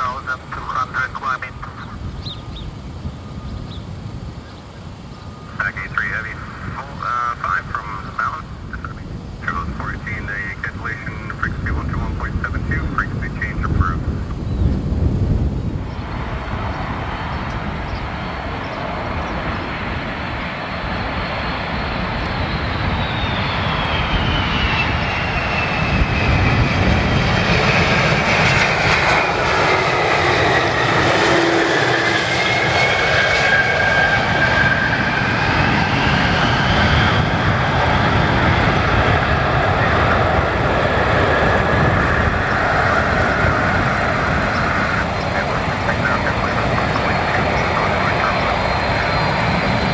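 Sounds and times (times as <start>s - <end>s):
jet engines rumbling and whining: 0.0s - 49.9s.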